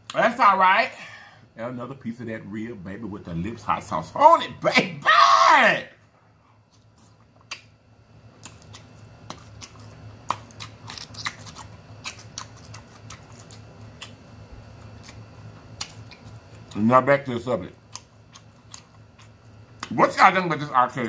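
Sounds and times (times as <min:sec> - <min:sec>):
faint low hum: 0:00.0 - 0:21.0
close chewing with wet mouth clicks: 0:08.4 - 0:16.8, 0:17.8 - 0:20.0.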